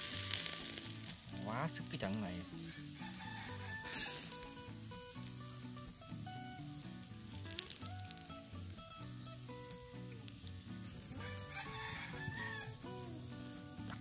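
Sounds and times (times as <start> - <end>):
background music: 0.0 - 14.0
mussels sizzling and bubbling: 0.0 - 14.0.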